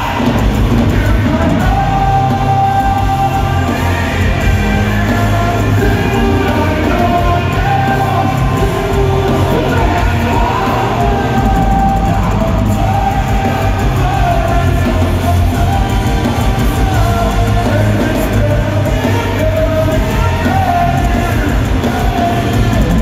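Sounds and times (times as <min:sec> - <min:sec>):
rock band playing live: 0:00.0 - 0:23.0.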